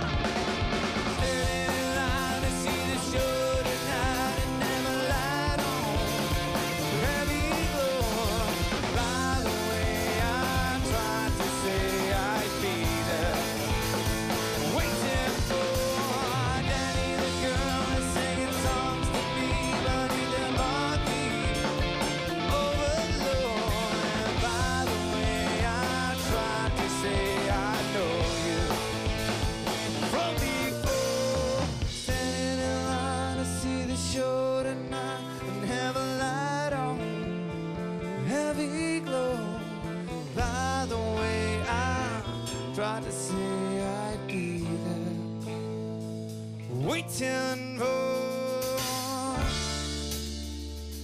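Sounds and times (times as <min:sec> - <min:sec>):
drums with steady beat: 0:00.0 - 0:33.8, 0:44.3 - 0:51.0
electric guitar: 0:00.0 - 0:51.0
man singing: 0:01.1 - 0:46.0, 0:46.6 - 0:50.1.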